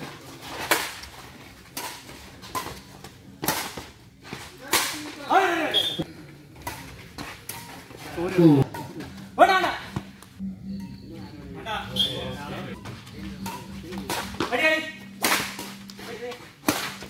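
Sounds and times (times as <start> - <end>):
racquets hitting shuttlecock: 0.5 - 5.2, 13.1 - 17.0.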